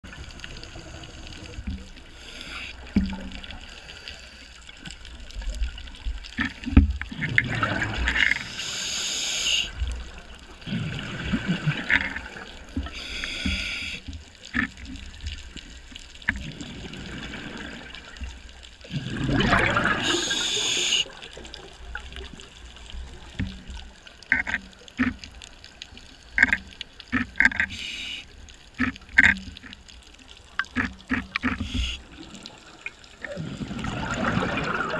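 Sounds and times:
underwater bubbles gurgling: 0.0 - 34.9
small clicks: 22.9 - 27.9, 28.5 - 33.3.

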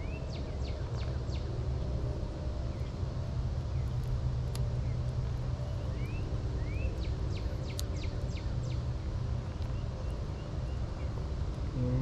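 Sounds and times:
bird chirping: 0.0 - 1.6, 4.7 - 12.0
steady low hum: 0.0 - 12.0.

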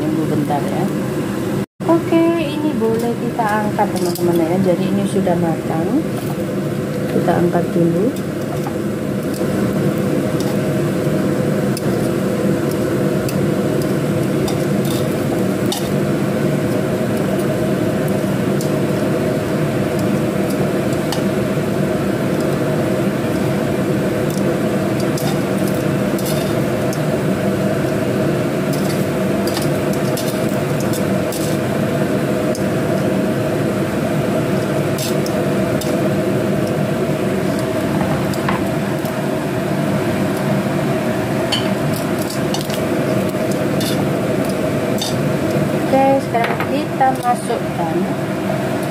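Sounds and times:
steady hum: 0.0 - 48.9
food sizzling in oil: 0.2 - 48.9
oil crackling and popping: 8.2 - 40.7, 41.5 - 45.9.

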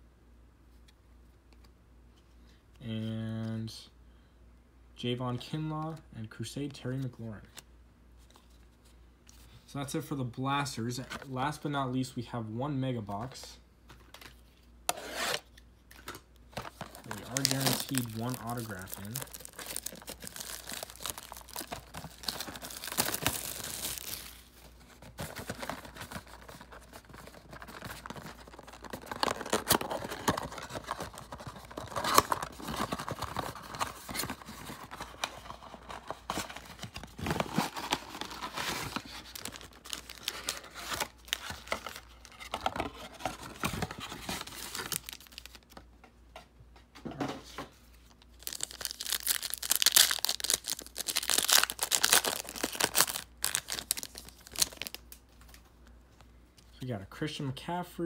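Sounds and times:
plastic wrapping tearing and crinkling: 16.6 - 24.5, 25.2 - 35.4, 36.9 - 43.0, 43.6 - 45.7, 48.3 - 55.1.

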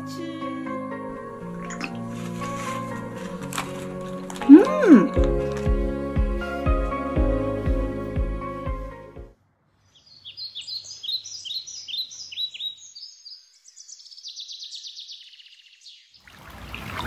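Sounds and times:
soft background music: 0.0 - 9.4
birds chirping: 9.8 - 16.3
bird trill: 9.9 - 16.2.

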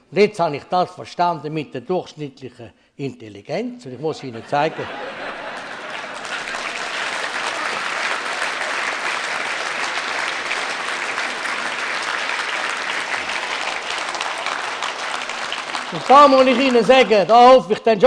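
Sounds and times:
audience applauding: 4.9 - 17.8.

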